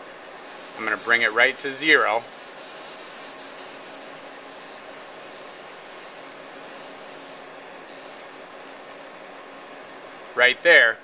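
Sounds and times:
milling machine mechanical hiss: 0.0 - 8.2.

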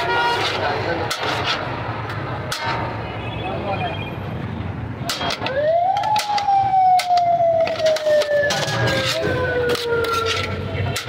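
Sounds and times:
siren tone sliding down: 5.5 - 10.3.

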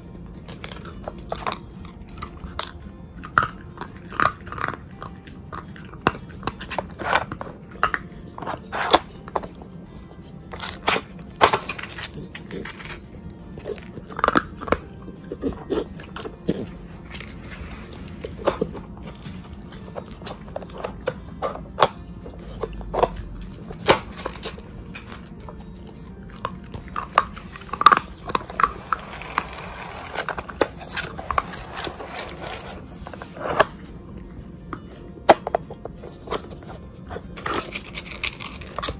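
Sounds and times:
dog crunching kibble: 0.0 - 38.9
plastic blocks clicking and knocking: 10.5 - 13.1, 18.2 - 25.7, 34.7 - 38.9.

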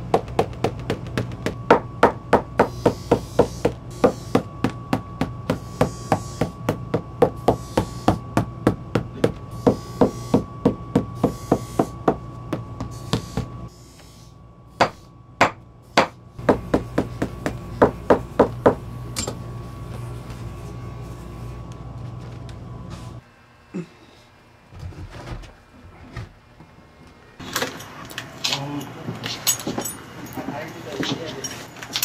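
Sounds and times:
hammer striking: 14.8 - 19.4.

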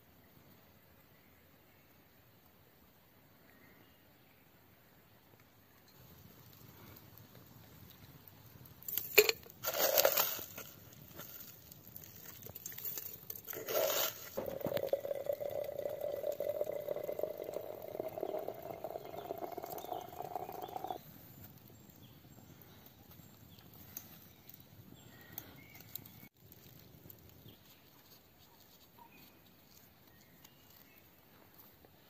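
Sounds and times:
hot water pouring into teapot: 12.1 - 21.0.

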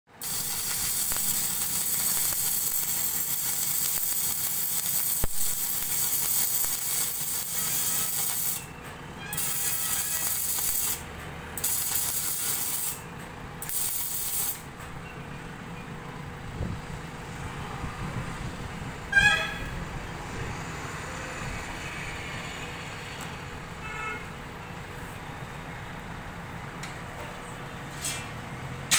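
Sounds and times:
arc welding crackling hiss: 0.2 - 8.7, 9.4 - 13.0, 13.6 - 14.7
horn toot: 19.1 - 19.8.

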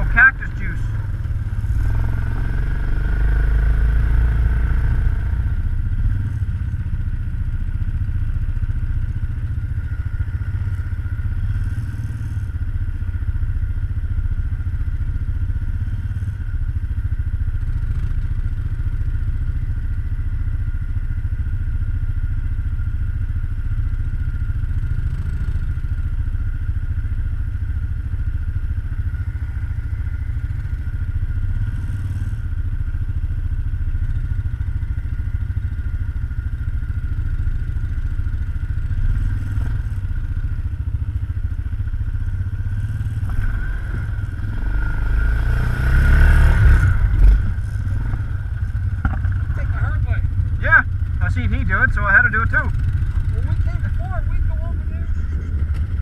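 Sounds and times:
engine low rumble with whine: 0.0 - 56.0
knocks and clatters over rocks: 48.9 - 49.6.

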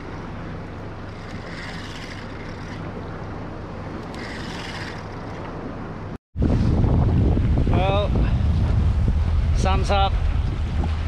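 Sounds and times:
boat engine idling: 0.0 - 6.2.

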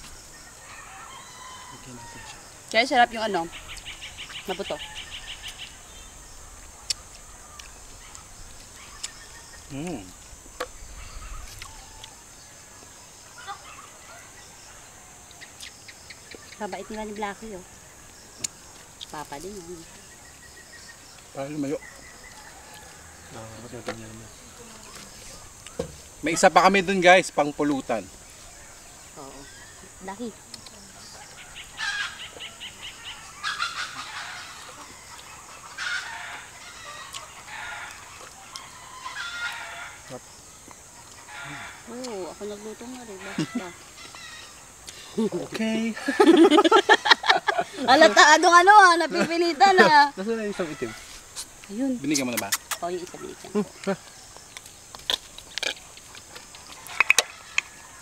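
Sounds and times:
high-pitched insect drone: 0.0 - 55.8
chickens calling: 0.0 - 58.0
steady high-pitched hiss: 0.0 - 58.0
rooster crowing: 0.6 - 2.6, 4.6 - 5.9, 22.0 - 24.7, 31.0 - 40.2, 41.2 - 42.2, 43.1 - 44.6, 46.3 - 48.9, 49.6 - 51.2
chickens clucking: 29.2 - 58.0.

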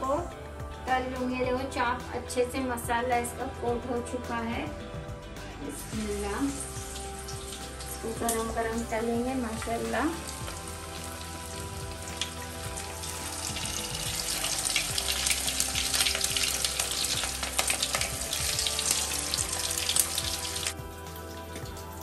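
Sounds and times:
meat sizzling in hot oil: 5.6 - 22.0.

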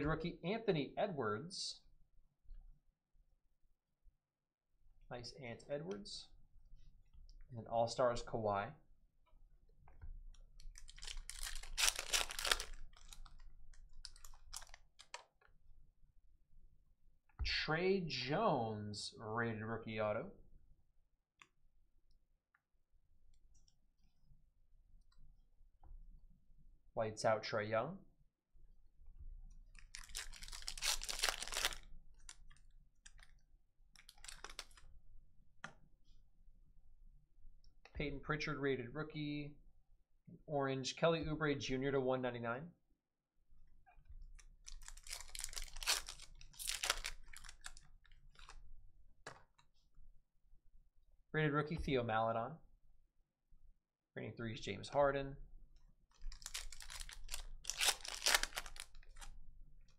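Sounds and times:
cards being handled: 10.6 - 15.3, 29.8 - 32.5, 34.0 - 34.8, 44.4 - 48.6, 56.2 - 59.3
foil wrapper tearing and crinkling: 10.7 - 13.4, 14.0 - 15.2, 29.8 - 32.4, 34.0 - 34.8, 44.6 - 48.6, 56.2 - 59.3.

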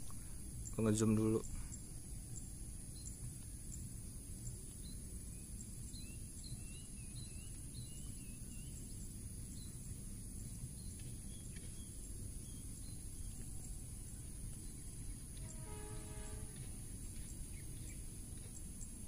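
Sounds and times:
faint bird chirps: 0.0 - 19.0
low background rumble: 0.0 - 19.0
high-pitched insect drone: 15.1 - 17.3.

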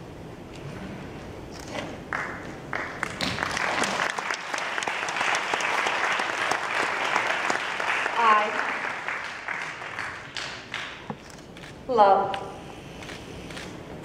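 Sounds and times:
audience applauding: 2.1 - 11.3.

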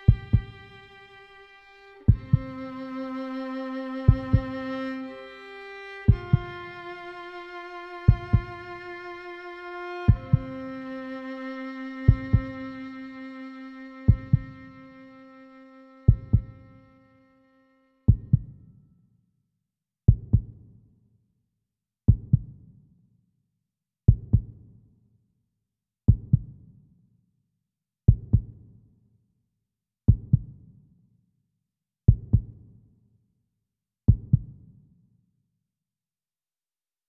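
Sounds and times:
heartbeat double thumps: 0.1 - 0.8, 2.1 - 2.5, 4.1 - 4.5, 6.1 - 6.6, 8.1 - 8.6, 10.1 - 10.6, 12.1 - 12.5, 14.1 - 14.5, 16.1 - 16.6.

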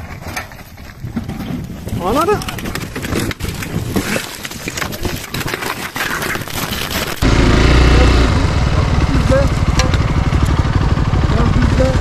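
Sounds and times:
stones crunching underfoot: 0.0 - 7.3
motorcycle engine running: 7.2 - 12.0.

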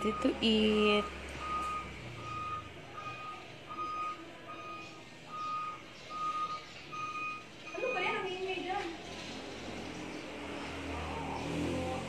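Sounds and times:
reversing alarm beeping: 0.0 - 8.4.

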